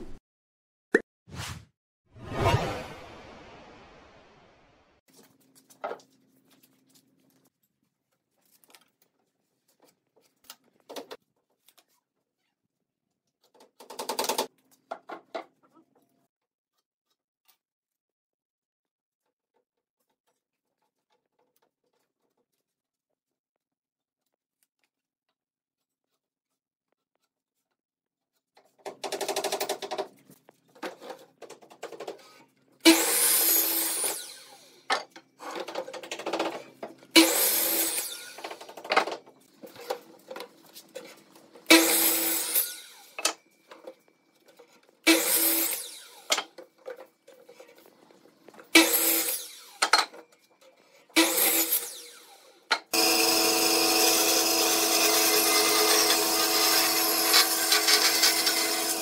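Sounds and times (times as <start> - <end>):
band saw cutting wood: 32.2 - 35.7, 36.4 - 38.8, 39.6 - 43.4, 45.0 - 46.6, 48.6 - 50.0, 51.1 - 59.0
miter saw cutting wood: 32.8 - 34.9, 36.6 - 38.8, 41.1 - 43.2, 45.0 - 46.4, 48.6 - 49.9, 51.2 - 59.0.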